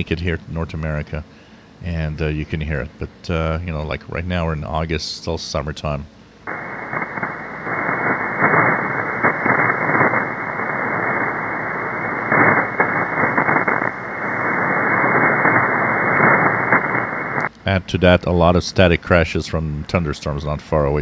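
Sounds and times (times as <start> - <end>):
radio static hiss: 0.0 - 21.0
static crashes: 6.5 - 17.8.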